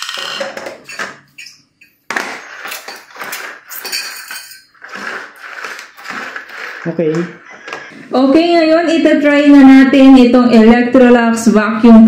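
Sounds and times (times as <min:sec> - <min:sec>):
vacuum attachments clattering on tile: 0:00.0 - 0:07.9.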